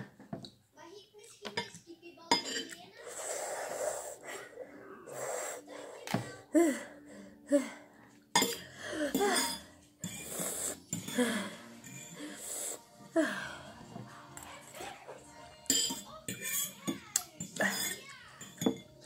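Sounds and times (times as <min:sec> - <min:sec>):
metal fork scraping on plate: 0:02.3 - 0:03.2, 0:09.2 - 0:11.2, 0:11.8 - 0:12.2, 0:15.7 - 0:19.0
breathy open-mouthed breaths: 0:03.0 - 0:14.2.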